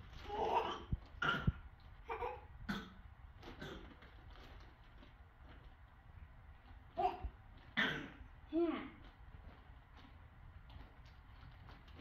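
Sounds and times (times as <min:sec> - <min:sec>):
cough-like burst: 0:02.7 - 0:03.9.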